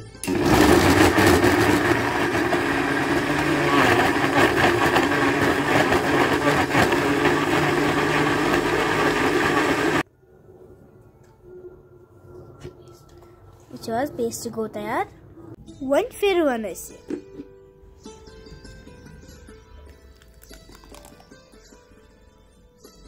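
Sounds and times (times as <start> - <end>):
electric mixer-grinder running: 0.2 - 10.0.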